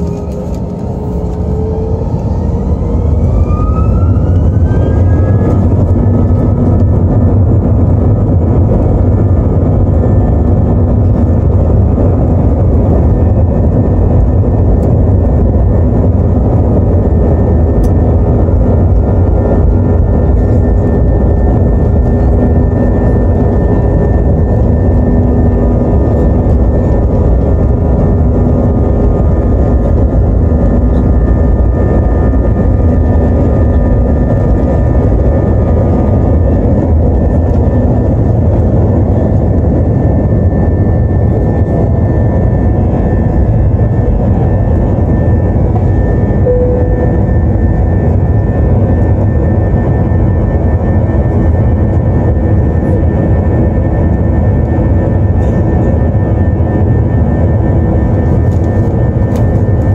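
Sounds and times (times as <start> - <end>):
jet engines at takeoff: 0.0 - 59.9.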